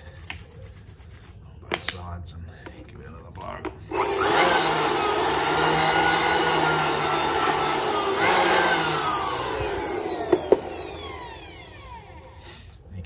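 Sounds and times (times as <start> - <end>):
electric blower whining: 3.9 - 12.6.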